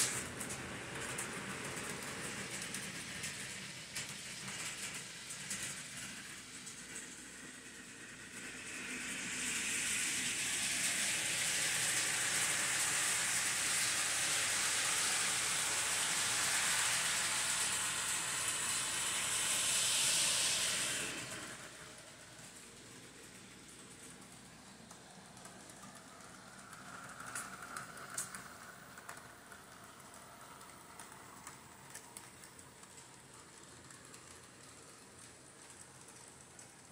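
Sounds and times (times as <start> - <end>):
model trains running: 0.0 - 36.9
steady high hiss: 2.3 - 36.9.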